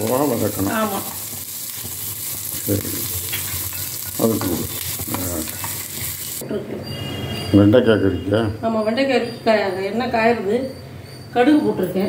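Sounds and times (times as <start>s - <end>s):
spices sizzling in hot ghee: 0.0s - 6.4s.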